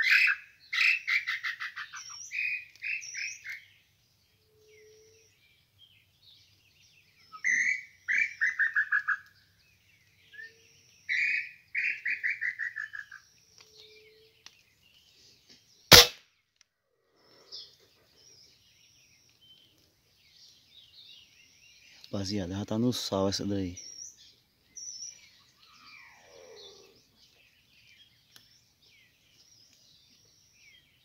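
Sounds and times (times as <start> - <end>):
small bird chirps: 0.0 - 16.0, 17.1 - 31.0
gunshot: 15.9 - 16.2.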